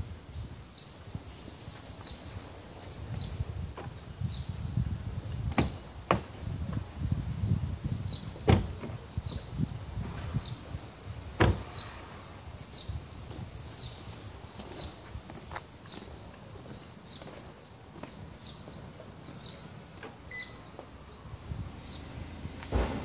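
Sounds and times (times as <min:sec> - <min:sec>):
car door shutting knocks: 0:05.5 - 0:06.3, 0:08.4 - 0:09.0, 0:11.4 - 0:11.9, 0:22.7 - 0:23.0
bird chirping: 0:07.0 - 0:15.1, 0:15.8 - 0:22.4
car door latch clicks: 0:08.4 - 0:08.9, 0:11.4 - 0:11.7.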